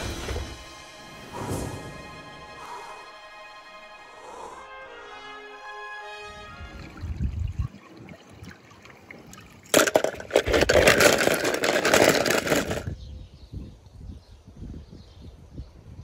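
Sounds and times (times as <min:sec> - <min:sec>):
toy cars tumbling into plastic tub: 0:09.7 - 0:13.0.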